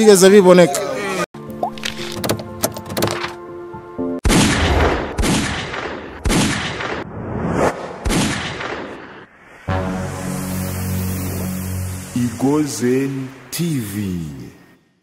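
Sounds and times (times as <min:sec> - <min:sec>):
held synth chord: 0:09.7 - 0:13.6.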